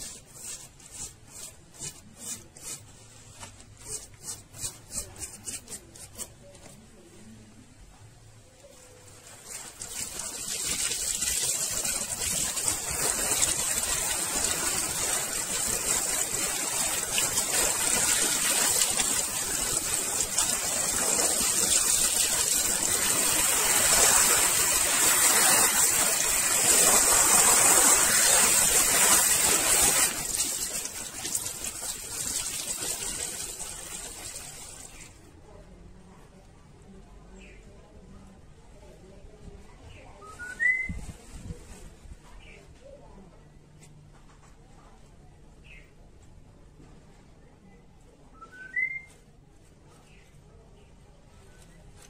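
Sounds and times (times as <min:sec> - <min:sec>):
water spray hissing on metal: 0:00.0 - 0:02.9, 0:09.2 - 0:35.2.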